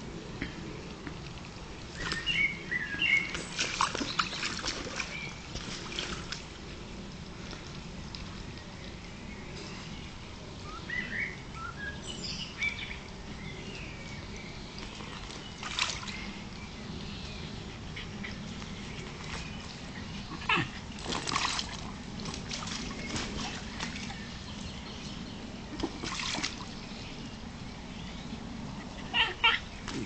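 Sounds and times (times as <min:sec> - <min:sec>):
pool water splashing: 0:00.0 - 0:27.5
dog sounds: 0:20.2 - 0:21.3.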